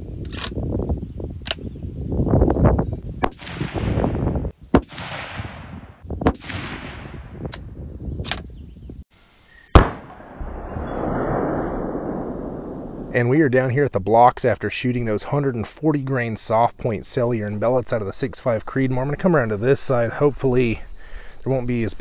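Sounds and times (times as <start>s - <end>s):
rifle shots with echo: 3.2s - 7.3s, 9.8s - 12.3s.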